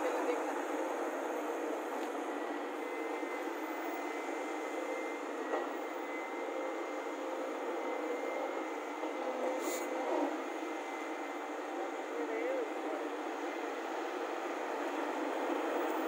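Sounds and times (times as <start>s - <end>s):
diesel machinery running: 0.0s - 16.0s
short hiss: 9.6s - 9.9s.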